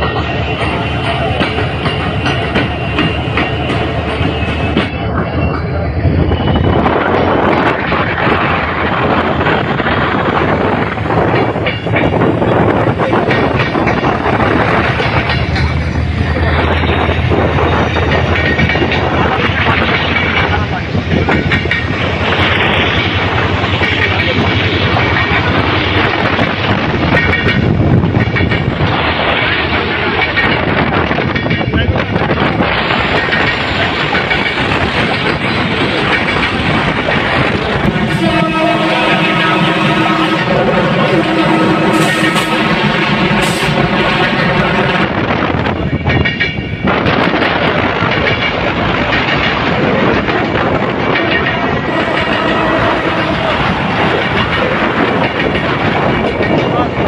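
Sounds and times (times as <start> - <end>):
train wheels rumbling on rails: 0.0 - 57.0
locomotive engine drone: 35.6 - 45.4, 50.7 - 56.2
wheels rolling on rails: 45.0 - 57.0.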